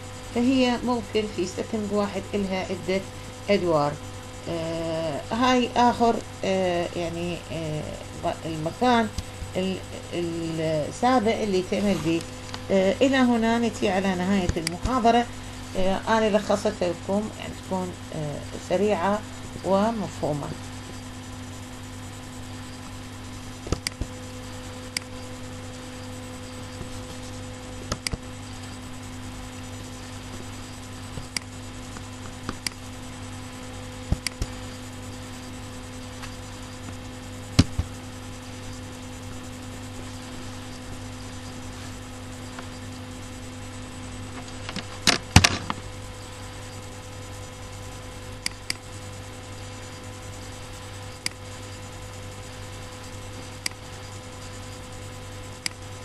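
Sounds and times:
low electrical hum: 0:00.0 - 0:56.0
computer mouse clicking: 0:14.4 - 0:15.0, 0:23.6 - 0:24.2, 0:24.9 - 0:25.2, 0:27.8 - 0:28.2, 0:31.2 - 0:32.8, 0:34.0 - 0:34.6, 0:48.4 - 0:48.9, 0:51.2 - 0:51.4, 0:53.6 - 0:53.8, 0:55.6 - 0:55.8.

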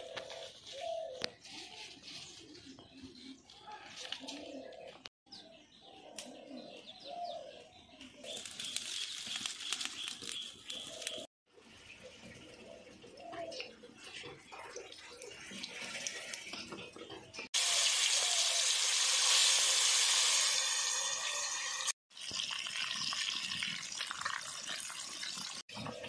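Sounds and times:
fish frying in hot oil: 0:17.6 - 0:25.6.

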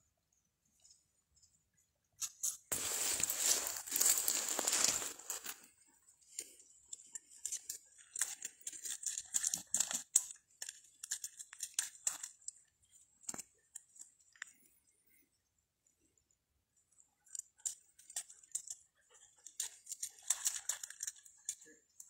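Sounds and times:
dry leaves and twigs crackling: 0:02.2 - 0:12.4.

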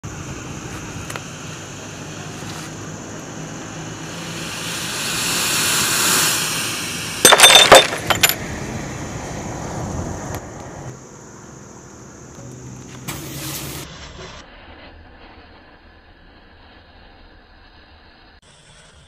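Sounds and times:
hissing rush of burning matches: 0:00.1 - 0:08.3, 0:12.6 - 0:19.0
glass bottle bursting: 0:04.0 - 0:08.4.

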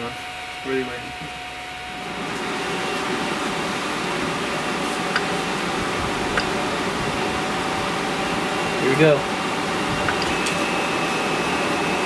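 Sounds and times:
electric fan blowing: 0:00.0 - 0:12.0.

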